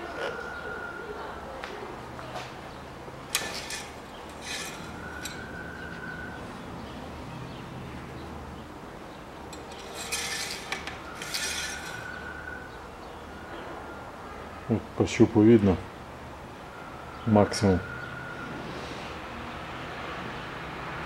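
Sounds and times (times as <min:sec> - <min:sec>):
clicks and scraping on engine: 0:03.2 - 0:06.0, 0:09.5 - 0:12.3.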